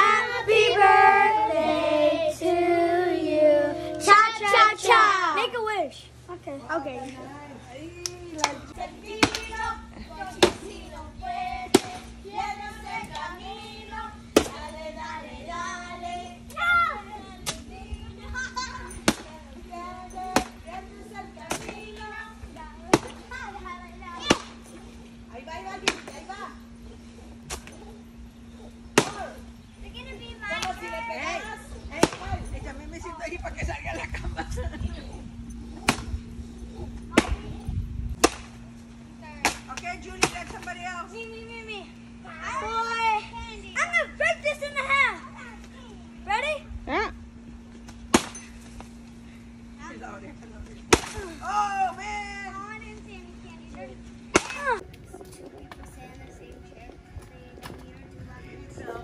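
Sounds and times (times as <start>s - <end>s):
stick whacking a pinata: 9.1s - 9.6s, 10.3s - 10.7s, 11.7s - 12.1s, 14.4s - 14.6s, 17.4s - 17.6s, 19.0s - 19.4s, 22.9s - 23.4s, 24.2s - 24.7s, 25.8s - 26.2s, 29.0s - 29.4s, 32.0s - 32.3s, 35.8s - 36.1s, 37.1s - 37.5s, 38.2s - 38.6s, 39.4s - 40.7s, 48.1s - 48.7s, 50.9s - 51.4s, 54.3s - 54.8s.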